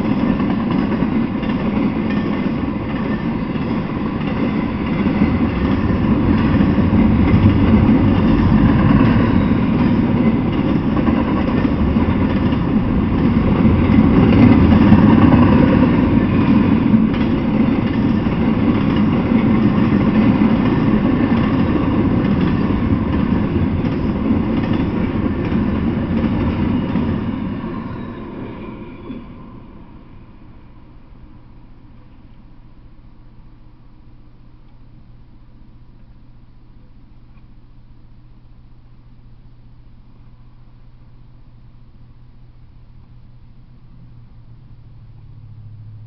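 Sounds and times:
freight train rolling past: 0:00.0 - 0:33.4, 0:42.9 - 0:46.0.

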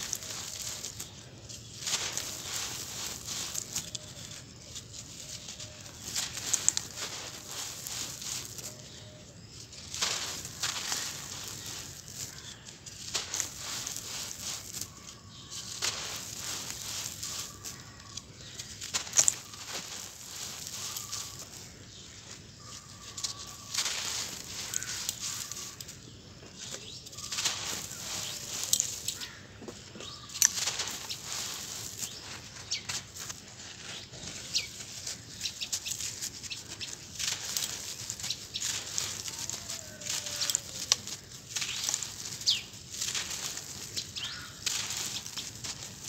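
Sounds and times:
hands crumbling dry sand-cement: 0:00.0 - 0:46.0.

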